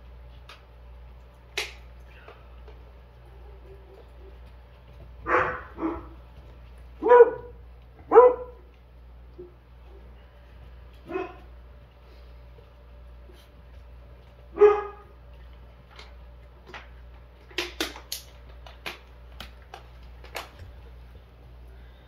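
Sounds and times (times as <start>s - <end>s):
puppy barking: 5.2s - 6.2s, 7.0s - 8.7s, 11.0s - 11.5s, 14.5s - 15.1s.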